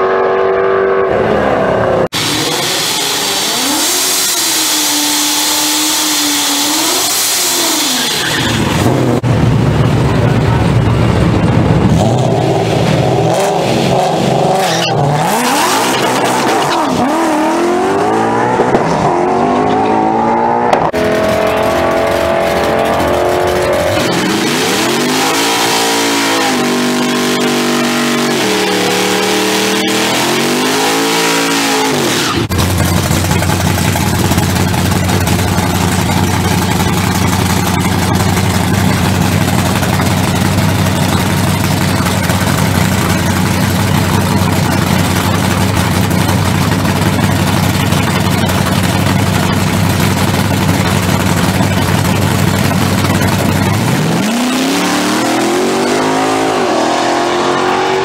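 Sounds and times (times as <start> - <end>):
car engine revving and accelerating: 0.0 - 9.2, 11.8 - 58.0
pickup truck engine revving: 0.0 - 58.0.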